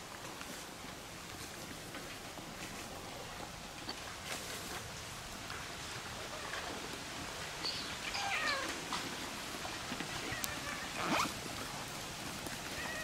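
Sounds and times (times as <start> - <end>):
cat meowing: 8.1 - 8.7, 12.8 - 13.0.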